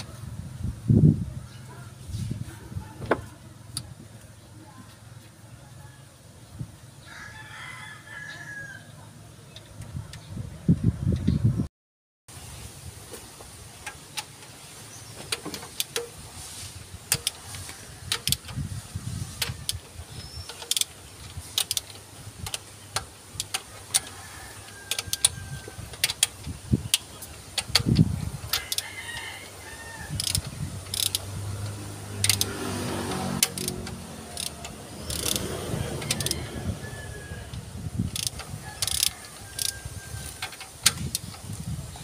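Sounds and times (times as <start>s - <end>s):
ratchet metallic clicks: 15.2s - 16.2s, 17.1s - 36.6s, 37.5s - 42.0s.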